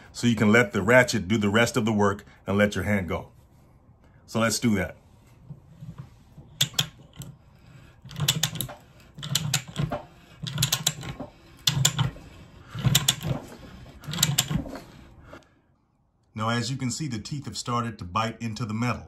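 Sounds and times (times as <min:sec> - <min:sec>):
pipe threader ratchet clicks: 0:06.6 - 0:14.8.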